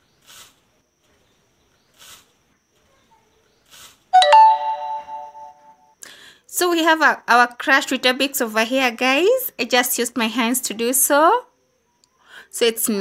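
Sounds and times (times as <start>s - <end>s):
faint short hisses: 0.2s - 0.6s, 2.0s - 2.3s, 3.7s - 4.0s
ringing chime: 4.2s - 5.8s.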